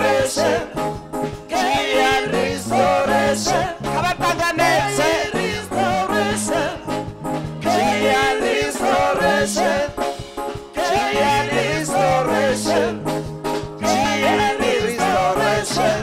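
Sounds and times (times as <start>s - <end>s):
bass line: 0.0s - 10.1s, 10.8s - 16.0s
drums beat: 0.1s - 16.0s
person singing: 13.8s - 16.0s.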